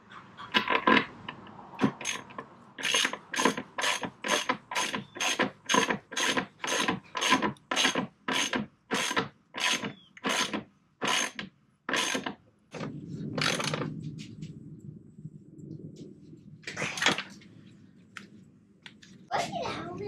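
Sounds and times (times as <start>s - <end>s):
low steady sound: 12.7s - 20.0s.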